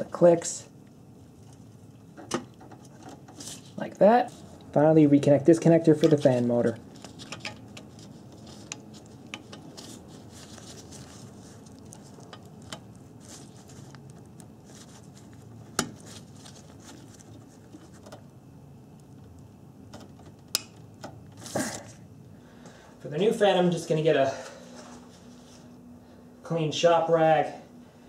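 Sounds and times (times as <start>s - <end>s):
hand handling plastic connector: 5.9s - 18.3s.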